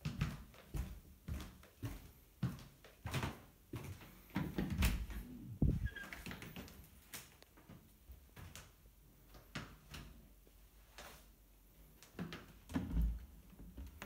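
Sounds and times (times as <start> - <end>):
footsteps on carpet: 0.1 - 2.8
heavy low thumps: 5.4 - 6.0.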